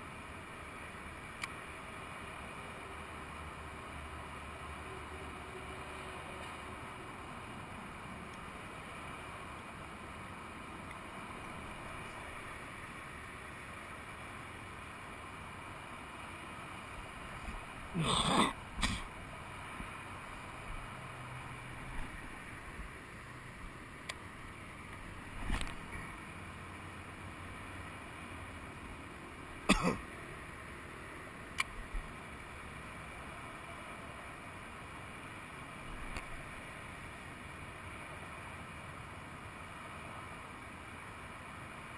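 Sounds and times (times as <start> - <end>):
steady hiss: 0.0 - 41.9.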